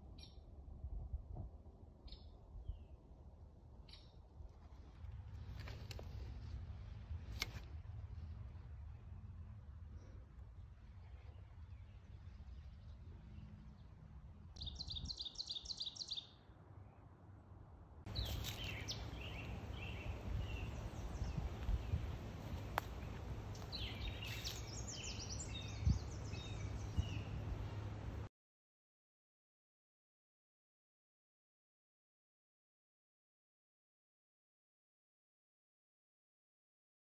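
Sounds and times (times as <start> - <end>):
steady low rumble: 0.0 - 15.2, 16.5 - 28.3
birds chirping and singing: 14.6 - 16.4, 18.1 - 27.4.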